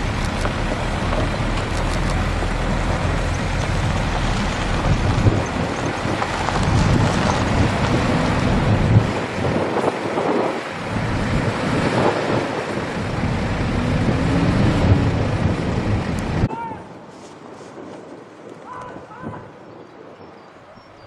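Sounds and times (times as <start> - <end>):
truck engine running: 0.0 - 16.5
steady rushing noise: 0.0 - 18.6.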